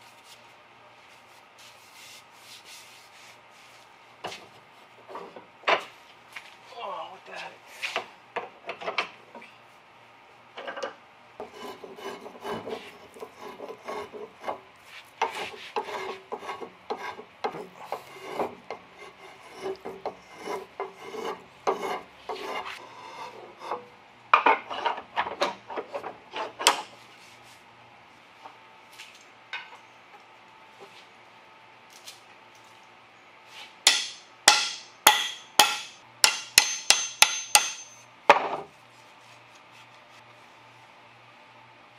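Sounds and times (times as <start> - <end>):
hand tool rasping wood: 11.4 - 14.6, 15.2 - 23.4, 33.9 - 37.8
sharp ringing taps: 33.9 - 38.0.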